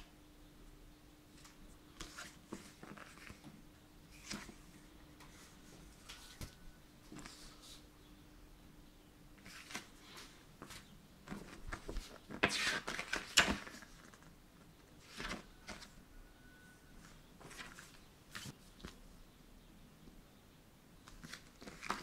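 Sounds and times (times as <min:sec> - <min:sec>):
paper sheets rustling: 0:01.4 - 0:03.5, 0:04.1 - 0:04.7, 0:09.4 - 0:14.3, 0:15.0 - 0:16.0, 0:17.0 - 0:19.0, 0:21.1 - 0:22.0.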